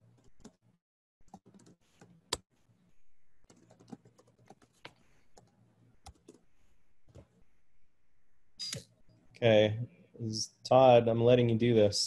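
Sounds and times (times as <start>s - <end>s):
typing on a keyboard: 3.5s - 4.7s.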